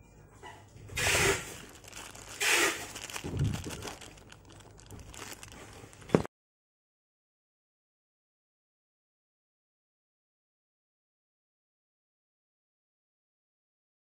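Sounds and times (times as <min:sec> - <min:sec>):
plastic bags crinkling: 0:00.9 - 0:06.3.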